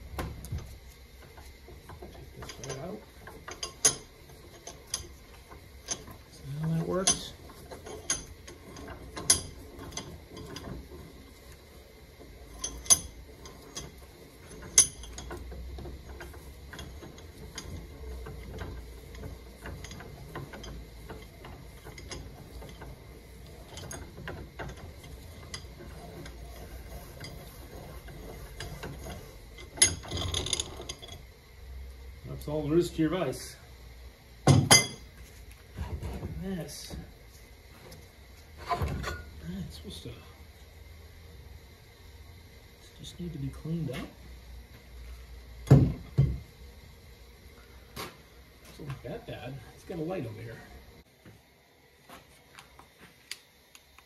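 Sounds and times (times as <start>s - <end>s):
metal vise clicking and clanking: 0.5s - 11.1s, 12.2s - 31.2s.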